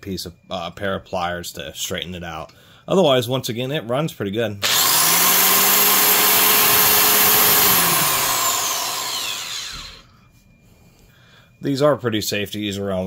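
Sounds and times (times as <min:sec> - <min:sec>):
saw motor whining and spinning down: 0:04.6 - 0:10.1.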